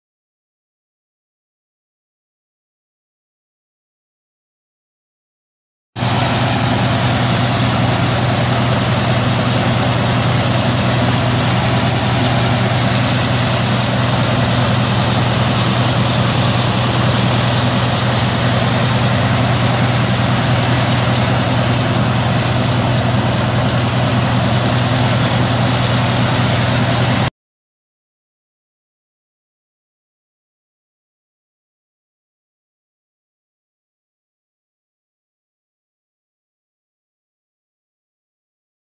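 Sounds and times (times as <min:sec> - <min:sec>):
diesel engines droning: 0:06.0 - 0:27.3.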